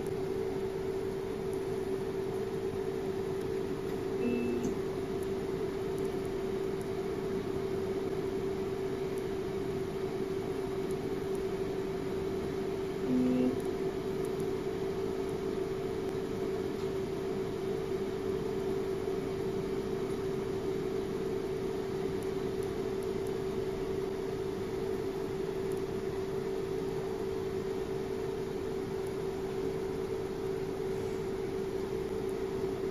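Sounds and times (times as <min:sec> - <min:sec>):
machine humming steadily: 0:00.0 - 0:32.9.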